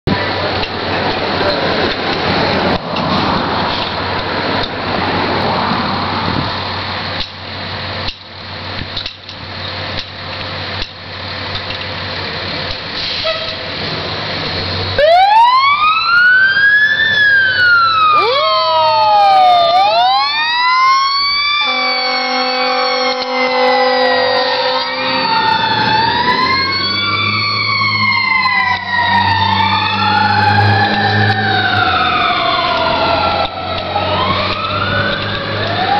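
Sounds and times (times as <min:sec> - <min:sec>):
heavy engine running: 0:00.1 - 0:20.6, 0:21.2 - 0:35.9
multi-tone horn blast: 0:13.2 - 0:13.7, 0:21.6 - 0:25.3
siren wailing: 0:14.9 - 0:35.9.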